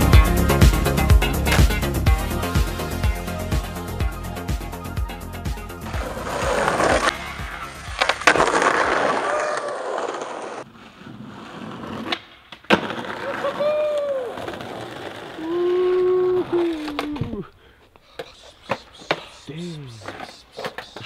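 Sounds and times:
skateboard clacks: 0:05.8 - 0:10.7, 0:18.0 - 0:19.3, 0:20.0 - 0:21.0
skateboard wheels rolling over brick: 0:05.8 - 0:17.4
person shouting: 0:15.4 - 0:17.5, 0:18.8 - 0:20.5.

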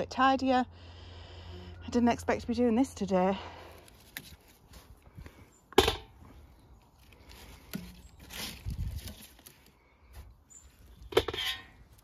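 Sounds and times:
rustling plant foliage: 0:03.3 - 0:12.0.

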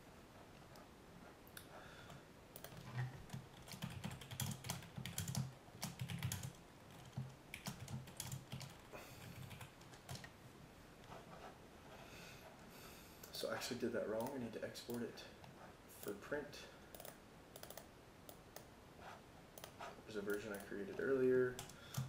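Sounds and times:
typing on a keyboard: 0:02.6 - 0:10.3, 0:16.9 - 0:17.9.

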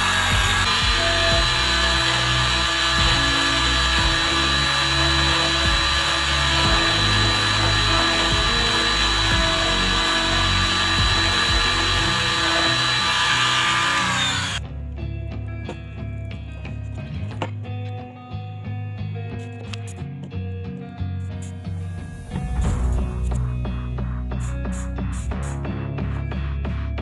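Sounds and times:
electric drill whining: 0:00.0 - 0:14.6.

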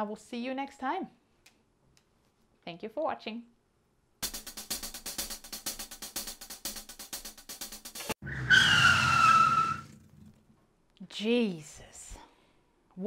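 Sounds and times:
hissing screech with falling tones: 0:08.2 - 0:09.9.

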